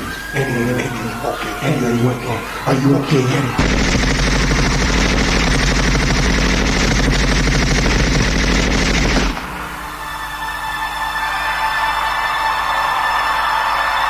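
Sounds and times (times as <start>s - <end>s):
machine-gun fire effect: 3.6s - 9.8s
held synth chord: 9.4s - 14.0s.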